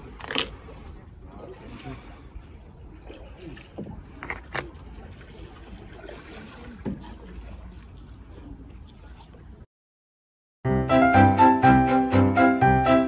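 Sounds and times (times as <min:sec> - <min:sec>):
faint distant voices: 0:00.6 - 0:09.6.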